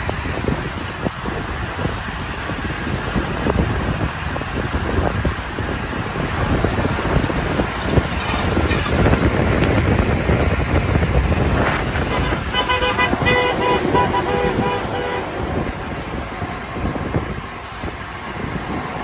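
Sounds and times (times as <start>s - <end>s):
passing road traffic: 0.0s - 19.0s
wind buffeting microphone: 0.0s - 19.0s
vehicle horn tooting: 12.0s - 15.6s.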